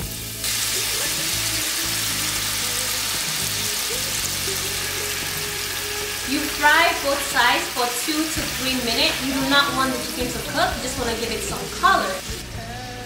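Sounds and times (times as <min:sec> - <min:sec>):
background music: 0:00.0 - 0:13.0
butter sizzling in frying pan: 0:00.0 - 0:13.0.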